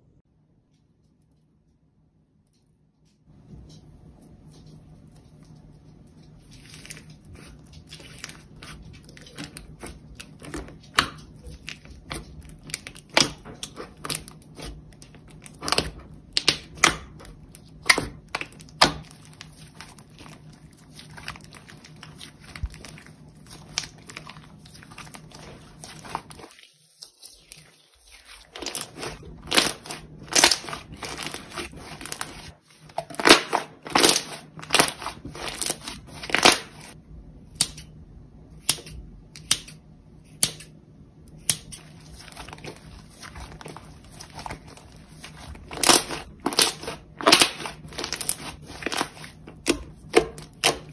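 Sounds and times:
slime popping and crackling: 0:06.6 - 0:27.7, 0:28.3 - 0:37.0, 0:41.8 - 0:50.9.

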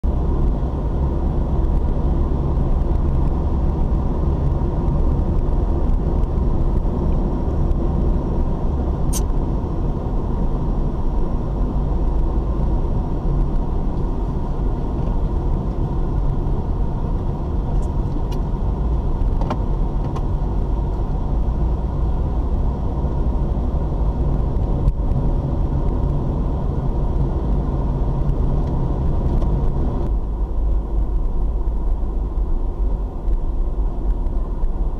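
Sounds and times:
car cabin road rumble: 0:00.0 - 0:34.9
sharp click: 0:09.1 - 0:09.3.

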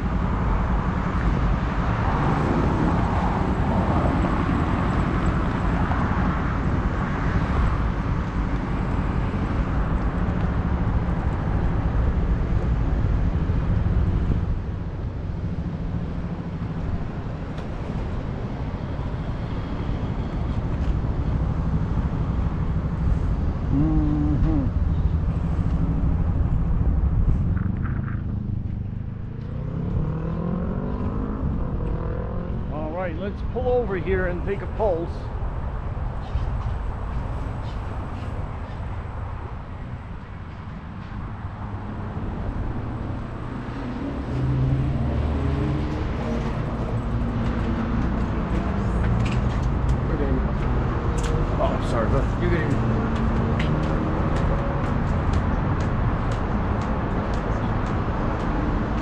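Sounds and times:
road traffic going by: 0:00.0 - 0:59.0
wind rushing over microphone: 0:00.0 - 0:59.0.

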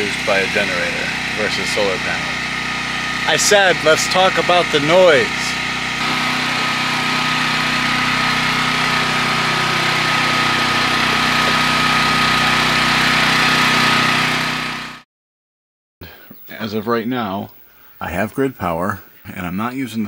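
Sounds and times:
high whine: 0:00.0 - 0:15.0
portable generator running: 0:00.0 - 0:15.0.

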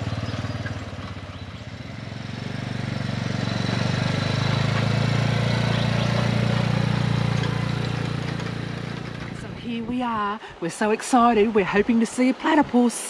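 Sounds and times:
quad bike engine approaching: 0:00.0 - 0:10.2.

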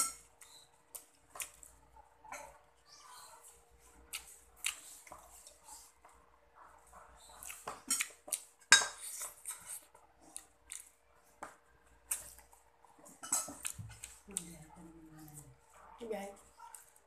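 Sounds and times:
chewing mouth sounds: 0:04.1 - 0:05.6, 0:07.3 - 0:11.0
spoon clinking on a plate: 0:13.2 - 0:13.6.

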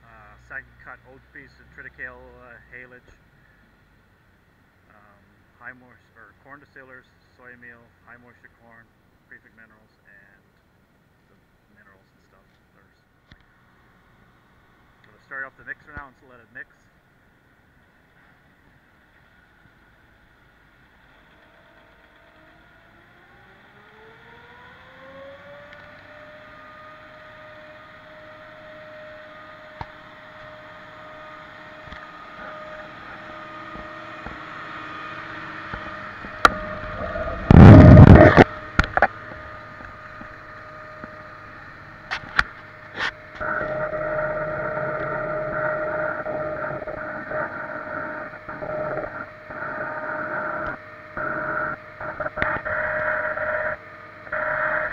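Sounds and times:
mixer wagon running hum: 0:20.9 - 0:54.9.

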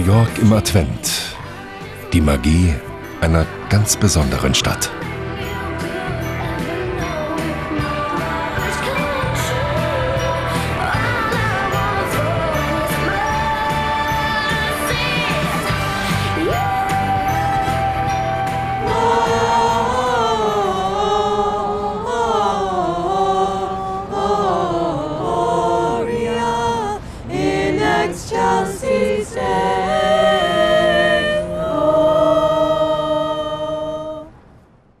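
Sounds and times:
group singing a carol: 0:00.0 - 0:34.3.

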